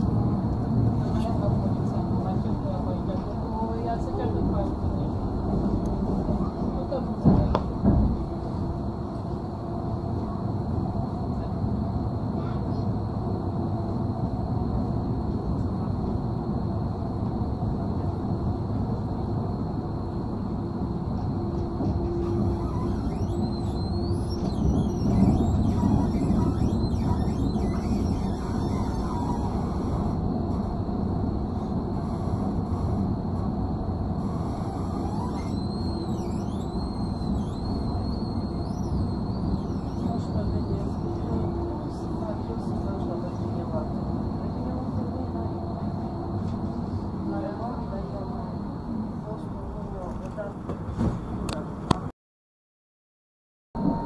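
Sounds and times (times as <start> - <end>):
tram wheels rumbling: 0.0 - 52.1
faint high whine: 8.4 - 50.5.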